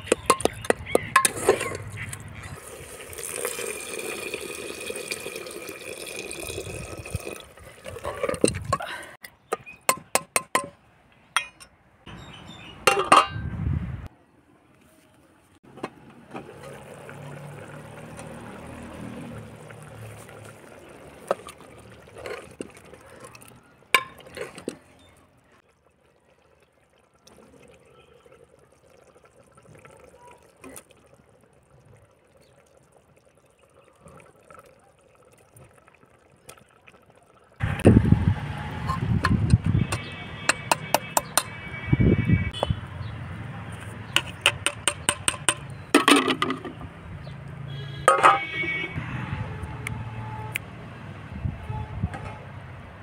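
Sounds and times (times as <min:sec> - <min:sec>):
metal ladle stirring pot: 0:00.0 - 0:04.3, 0:05.9 - 0:08.9, 0:19.3 - 0:25.1, 0:38.8 - 0:41.7, 0:43.8 - 0:46.9
liquid splashing and pouring: 0:02.6 - 0:08.7, 0:16.4 - 0:37.6.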